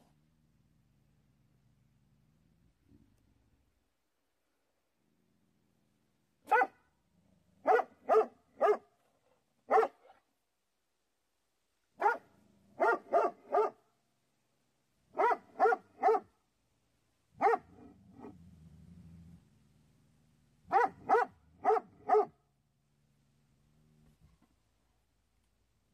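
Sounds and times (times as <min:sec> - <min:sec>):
faint low rumble: 0:00.0 - 0:07.6, 0:16.6 - 0:20.8
dog barking: 0:06.4 - 0:06.9, 0:07.6 - 0:08.9, 0:09.7 - 0:10.2, 0:12.0 - 0:13.8, 0:15.1 - 0:16.4, 0:17.4 - 0:18.4, 0:20.7 - 0:22.4.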